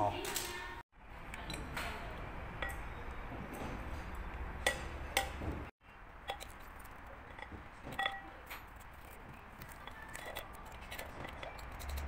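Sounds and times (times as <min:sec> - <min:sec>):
glass clinking against metal: 0:02.6 - 0:05.5, 0:06.3 - 0:08.8.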